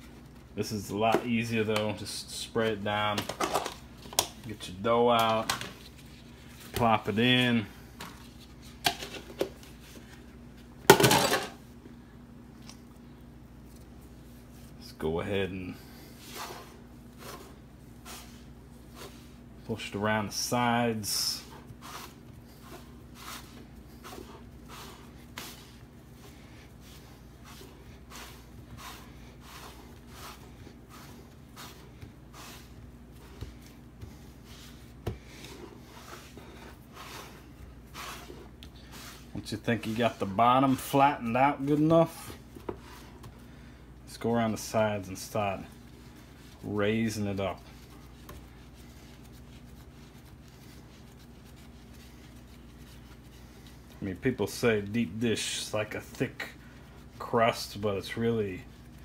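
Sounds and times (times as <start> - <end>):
faint steady hum: 0.0 - 59.0
hands squishing pizza dough: 12.6 - 59.0.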